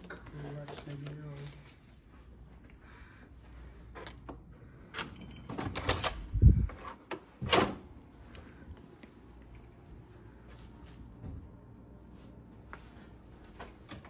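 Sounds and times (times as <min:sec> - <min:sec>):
keycard lock beep: 0:04.9 - 0:06.2.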